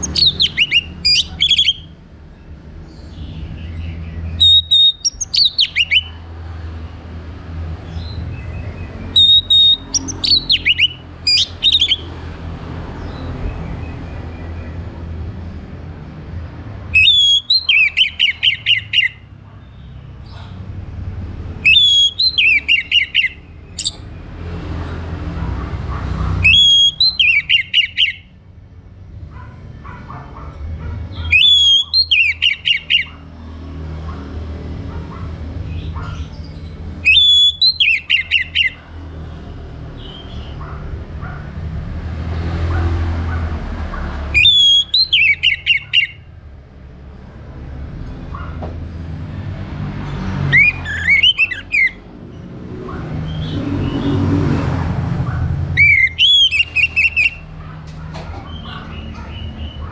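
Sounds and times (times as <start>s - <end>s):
bird singing whistled phrase: 0.0s - 1.9s, 4.4s - 6.1s, 9.2s - 12.0s, 17.0s - 19.2s, 21.7s - 24.0s, 26.5s - 28.2s, 31.2s - 33.1s, 37.0s - 38.8s, 44.4s - 46.2s, 55.8s - 57.4s.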